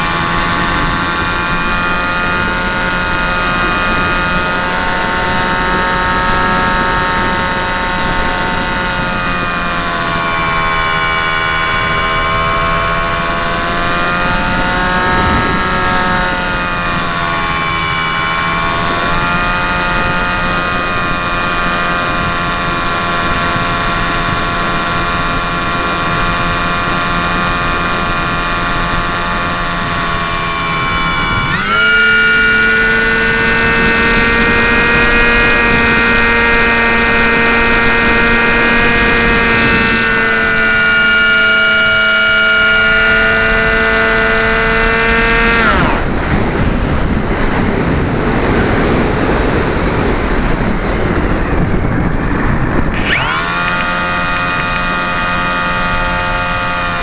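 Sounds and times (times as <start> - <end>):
model aircraft motor whine: 0.0 - 57.0
wind rushing: 45.2 - 53.5.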